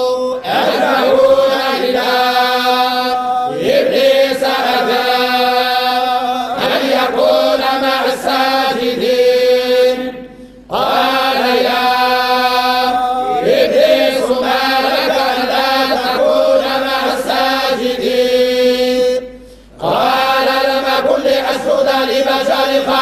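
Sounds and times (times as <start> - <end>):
men chanting in unison: 0.0 - 23.0.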